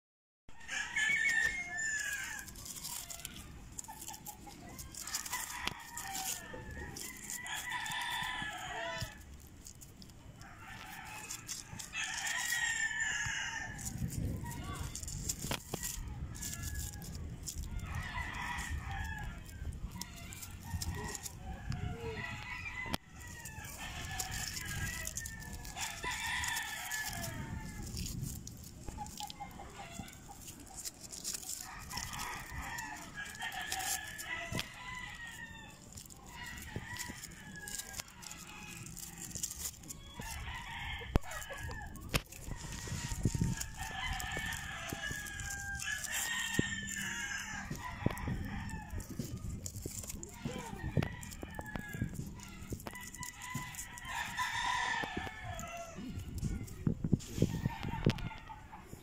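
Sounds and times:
roosters crowing: 0.5s - 59.0s.

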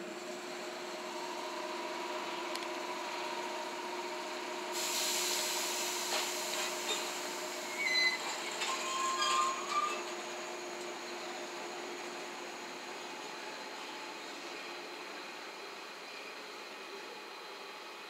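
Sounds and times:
rush of train noise: 0.0s - 18.0s
wheels squealing: 7.7s - 10.1s.

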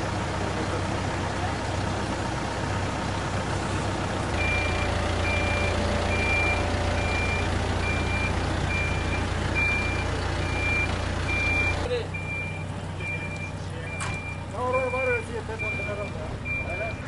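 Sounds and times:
loader engine running: 0.0s - 17.0s
reversing alarm beeping: 4.4s - 17.0s.

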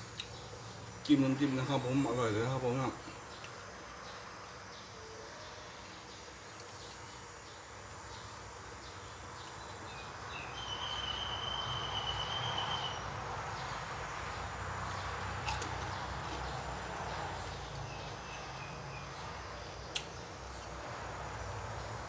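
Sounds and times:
steady background noise: 0.0s - 22.0s.

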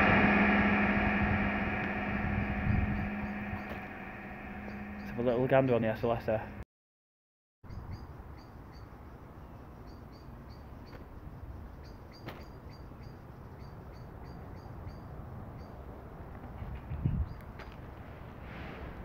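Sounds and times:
low outdoor rumble: 0.0s - 6.6s.

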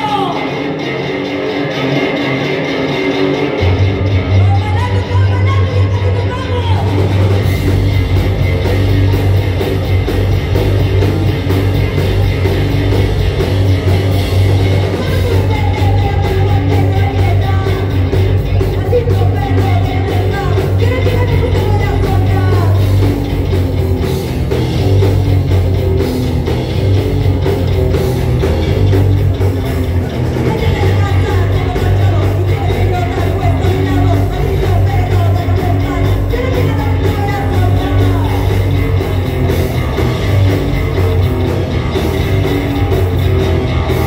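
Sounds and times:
bass guitar: 0.0s - 44.0s
distorted electric guitar: 0.0s - 44.0s
drum kit: 0.0s - 44.0s
woman singing: 15.0s - 22.8s, 30.5s - 38.4s.

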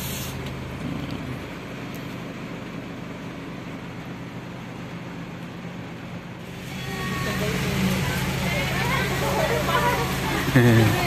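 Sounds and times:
heavy rain on vehicle roof: 7.0s - 11.0s.

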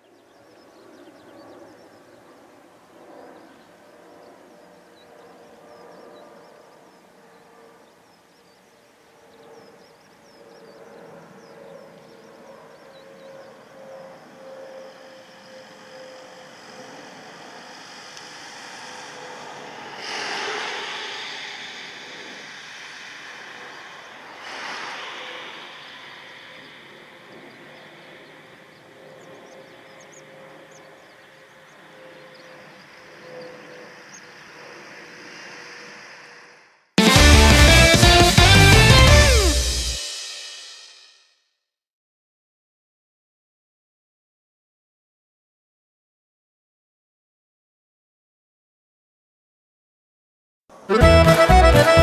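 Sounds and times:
jet engines overhead: 0.0s - 40.4s.

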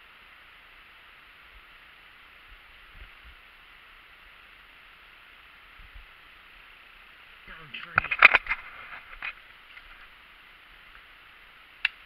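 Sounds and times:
faint microphone hiss: 0.0s - 12.0s.

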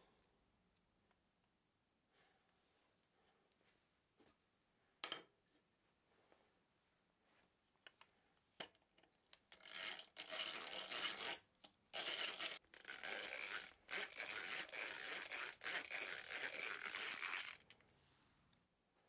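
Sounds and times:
hand drill boring into wood: 9.6s - 11.4s, 12.0s - 17.8s.

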